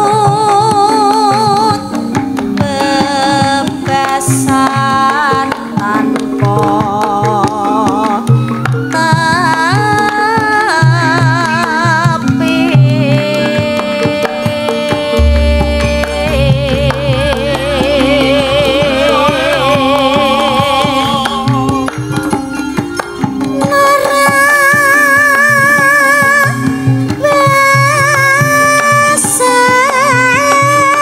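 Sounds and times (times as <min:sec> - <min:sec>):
woman singing with vibrato: 0:00.0 - 0:22.7, 0:23.5 - 0:31.0
gamelan accompaniment: 0:00.0 - 0:31.0
hand drum strokes: 0:00.0 - 0:31.0
deep held low note: 0:15.2 - 0:20.4.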